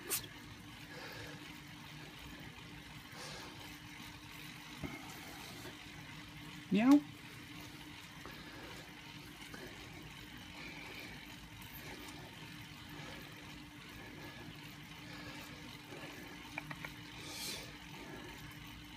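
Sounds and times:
spin bike flywheel whirring: 0:00.0 - 0:18.9
faint clicks: 0:16.4 - 0:17.1.

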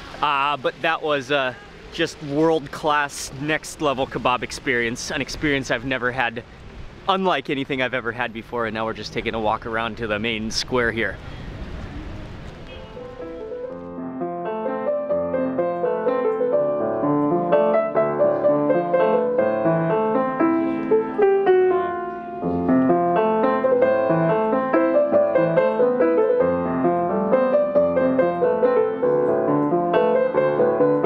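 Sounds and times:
piano music: 0:12.7 - 0:31.0.

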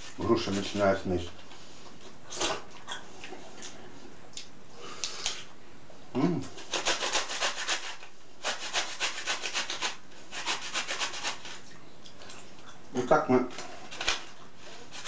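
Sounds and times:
pear grated on metal grater: 0:06.6 - 0:11.6.

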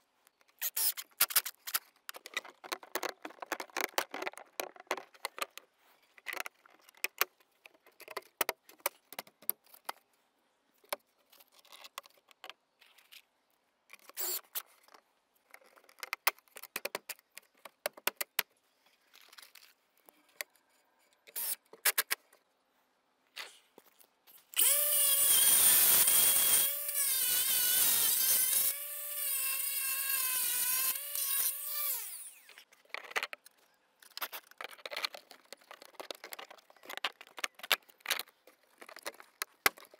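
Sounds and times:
plastic parts clicking and knocking: 0:00.3 - 0:10.1, 0:10.8 - 0:13.2, 0:13.9 - 0:18.6, 0:32.7 - 0:39.9
power drill whining: 0:24.6 - 0:32.6.

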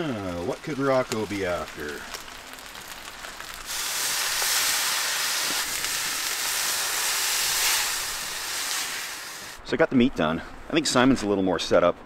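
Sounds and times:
water sizzling on hot griddle: 0:00.0 - 0:09.6.

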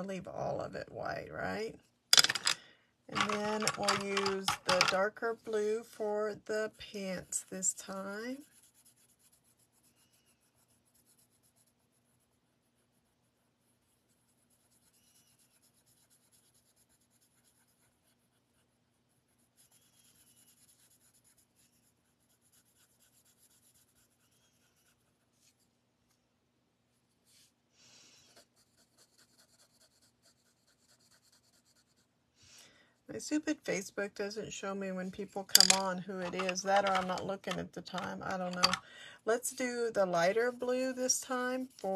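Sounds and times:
pencil scratching on card: 0:03.3 - 0:25.6, 0:28.3 - 0:32.1, 0:39.5 - 0:41.9.

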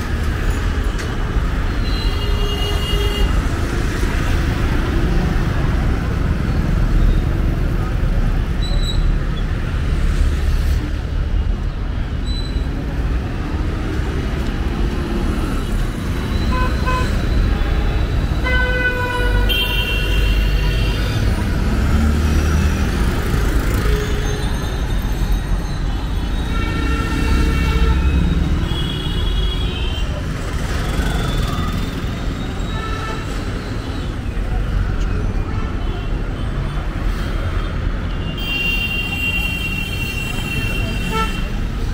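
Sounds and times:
traffic engines rumbling: 0:00.0 - 0:41.9
vehicle horns honking: 0:16.4 - 0:21.2, 0:38.2 - 0:41.6.

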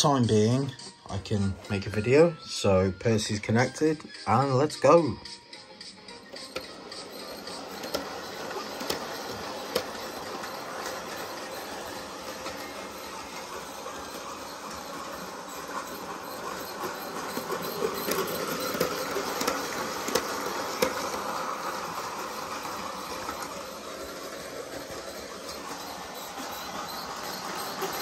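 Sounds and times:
locomotive squeak: 0:00.0 - 0:05.1, 0:06.3 - 0:28.0
model train whirring rumble: 0:06.5 - 0:28.0.

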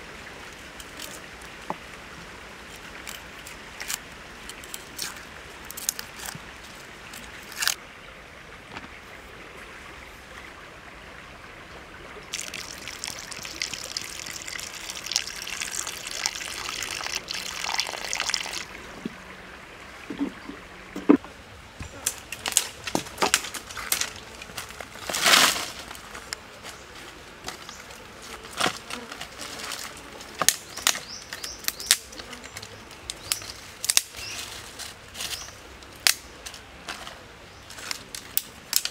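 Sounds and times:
dry twigs clicking and knocking: 0:02.7 - 0:07.8, 0:21.8 - 0:38.9
liquid pouring: 0:12.3 - 0:19.1.

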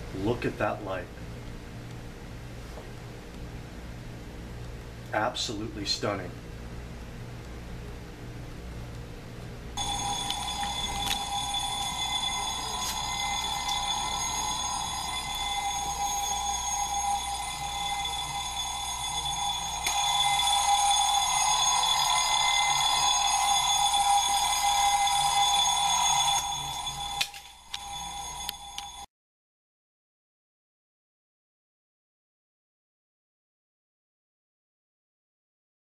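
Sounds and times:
alarm clock bell ringing: 0:09.8 - 0:29.1.

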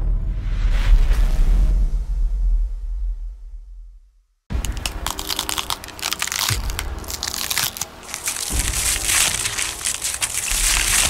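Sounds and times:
bone crushing and cracking: 0:04.5 - 0:11.0.

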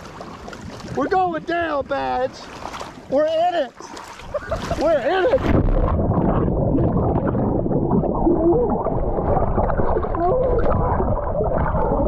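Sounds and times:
muffled underwater gurgling: 0:05.0 - 0:12.0.

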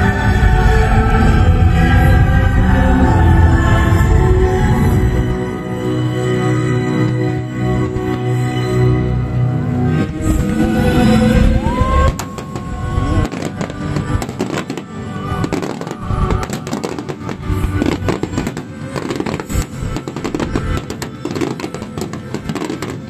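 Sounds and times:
fireworks bangs and crackles: 0:10.0 - 0:23.0.

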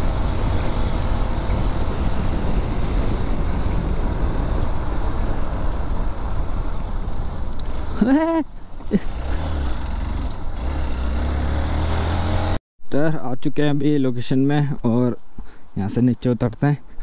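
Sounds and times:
motorcycle engine: 0:00.0 - 0:06.1, 0:08.8 - 0:12.6
wind buffeting on microphone: 0:00.0 - 0:08.0.

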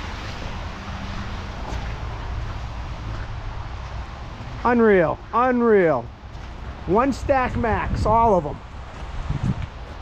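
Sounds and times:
rain hiss: 0:00.0 - 0:05.4.

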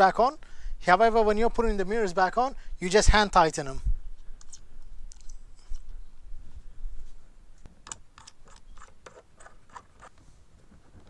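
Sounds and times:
wind rumble on microphone: 0:03.1 - 0:04.2.

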